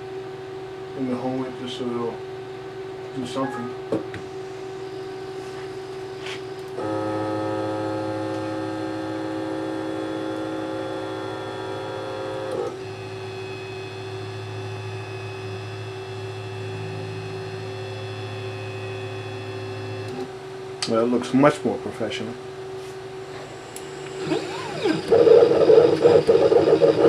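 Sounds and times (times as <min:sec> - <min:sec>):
steady electrical hum: 0:00.0 - 0:27.0
motors whining: 0:23.2 - 0:27.0.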